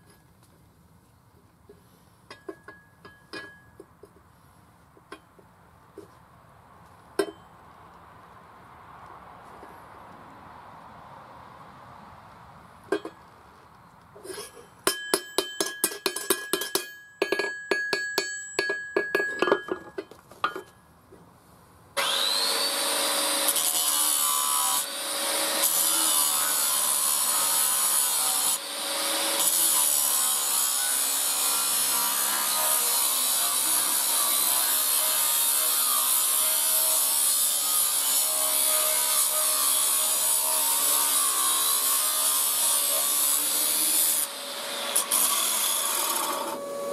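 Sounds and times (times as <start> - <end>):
hammer ringing on steel: 14.9 - 19.8
angle grinder grinding steel: 22.0 - 46.9.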